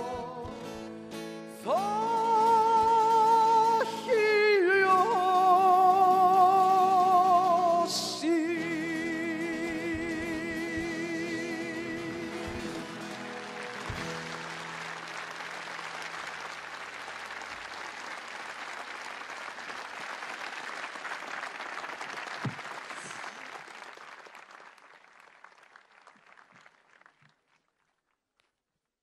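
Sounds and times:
audience applauding: 8.2s - 28.2s.

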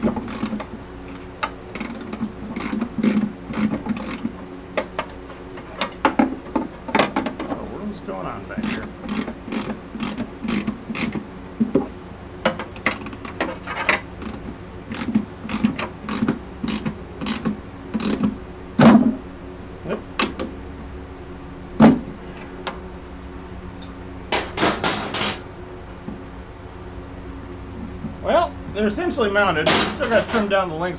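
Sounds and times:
steady low hum: 0.0s - 30.9s
wrench clicking on bolt: 8.6s - 11.2s, 14.2s - 18.3s.

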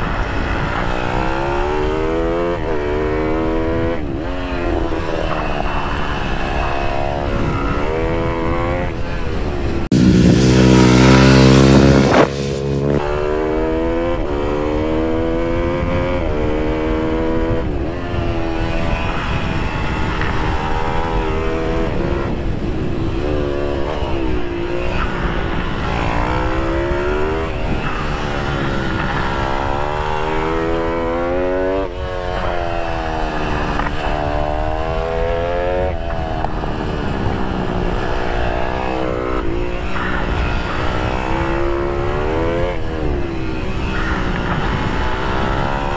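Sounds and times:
motorbike engine revving: 0.0s - 45.9s
wind rush on microphone: 0.0s - 45.9s.

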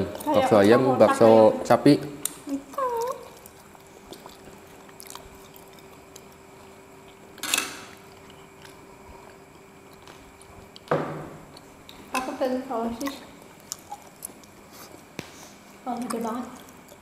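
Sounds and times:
chewing: 2.2s - 10.9s, 13.0s - 15.1s, 15.9s - 17.0s.

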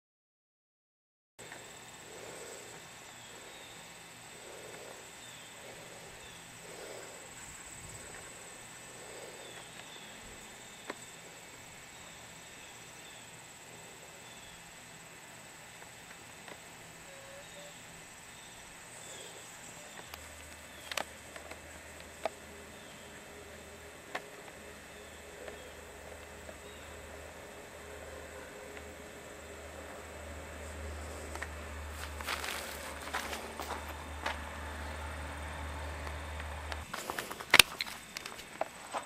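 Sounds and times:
constant high hum: 1.4s - 39.0s
insects chirping: 1.4s - 39.0s
sharp clicks: 36.0s - 38.6s.

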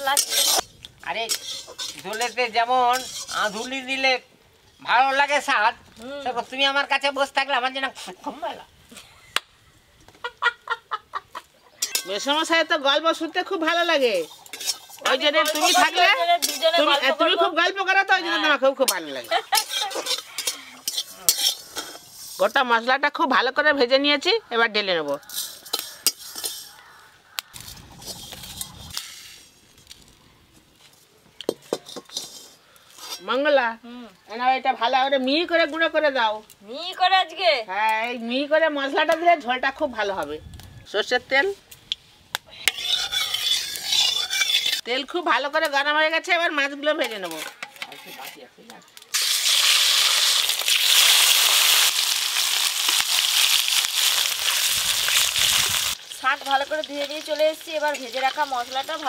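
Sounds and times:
fish sizzling in hot oil: 0.0s - 4.2s, 13.4s - 17.3s, 19.3s - 22.6s, 49.1s - 59.0s
metal spatula scraping a pan: 0.0s - 4.2s, 11.8s - 12.5s, 13.6s - 17.4s, 18.4s - 22.7s, 25.1s - 26.9s, 27.5s - 29.6s, 31.6s - 33.5s, 42.6s - 44.9s, 46.9s - 48.5s.

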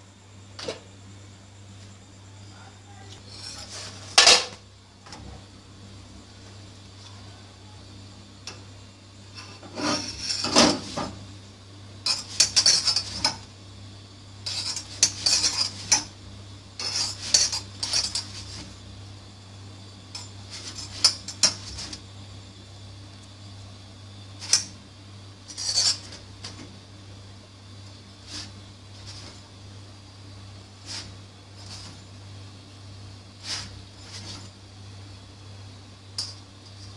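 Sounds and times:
utensil scraping iron griddle: 3.2s - 4.5s, 9.3s - 11.2s, 12.0s - 13.5s, 14.4s - 16.2s, 16.8s - 18.8s, 20.1s - 22.0s, 25.4s - 26.6s, 28.1s - 29.5s, 30.8s - 32.2s, 33.3s - 34.6s.

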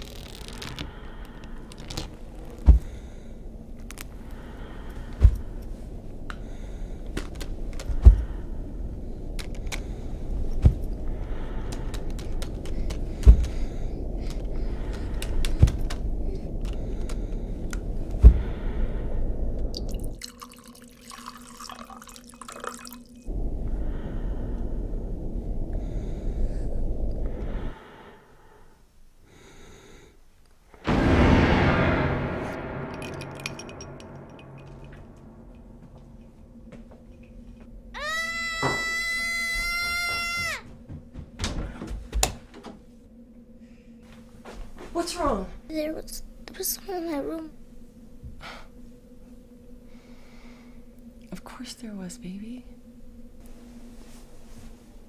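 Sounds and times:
low rumbling drone: 0.0s - 21.2s, 23.0s - 28.8s, 30.8s - 40.0s, 40.6s - 55.0s
heavy thuds: 2.2s - 3.4s, 5.0s - 5.8s, 7.9s - 8.4s, 12.7s - 18.7s, 40.6s - 42.9s
loud sound: 30.9s - 36.0s.

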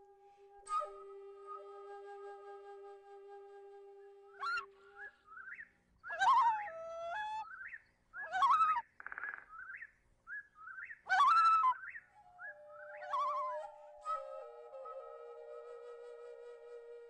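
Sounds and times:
held flute notes: 0.0s - 5.4s, 11.5s - 17.0s
bird whistled calls: 4.3s - 15.9s
bird rising chirps: 7.4s - 14.0s.

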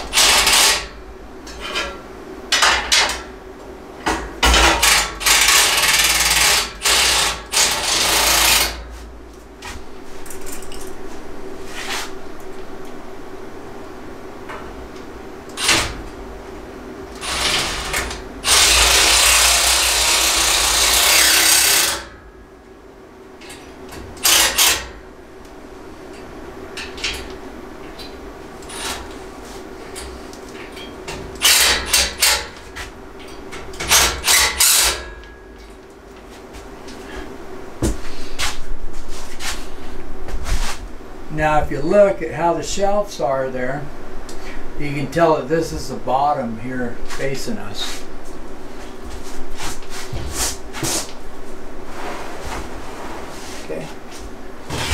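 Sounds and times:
cordless drill driving screws: 17.2s - 22.0s.

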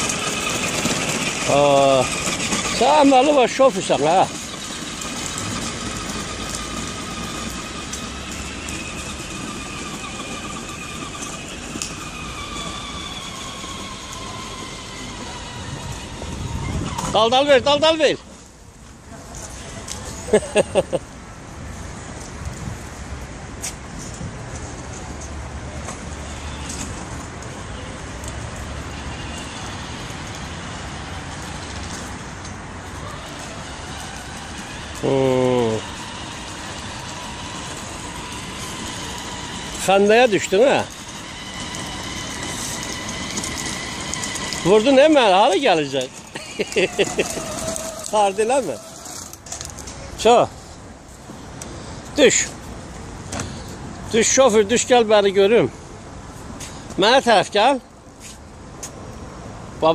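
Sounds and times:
toy car electric motor whine: 0.0s - 18.0s, 26.0s - 49.9s
low vehicle hum: 0.0s - 57.0s
low street rumble: 0.0s - 59.9s
road noise hiss: 0.0s - 59.9s.

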